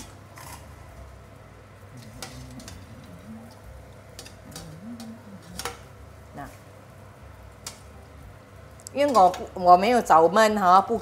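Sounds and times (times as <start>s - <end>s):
low steady hum: 0.0s - 11.0s
low wavering murmurs: 1.7s - 6.4s.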